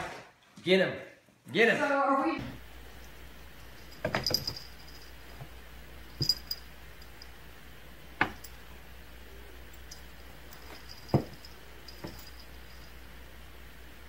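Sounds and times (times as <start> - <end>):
collar jingle: 2.9 - 7.5, 8.2 - 13.2
cat paws tapping on glass: 10.0 - 12.7.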